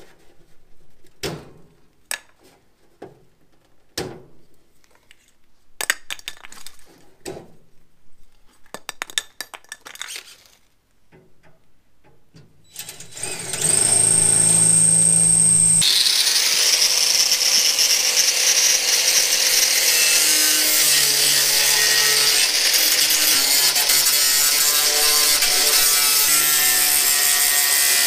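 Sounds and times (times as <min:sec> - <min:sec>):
metal parts clinking and scraping: 0:08.7 - 0:10.7
cordless drill running: 0:12.8 - 0:20.0.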